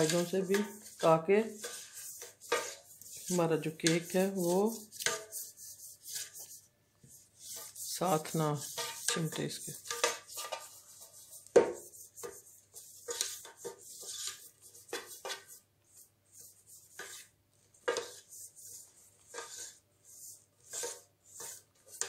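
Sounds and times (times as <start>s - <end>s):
metal pan knocks and scrapes: 0.0s - 6.5s, 7.4s - 15.5s, 17.0s - 18.3s
hand rubbing metal cake pan: 0.0s - 22.0s.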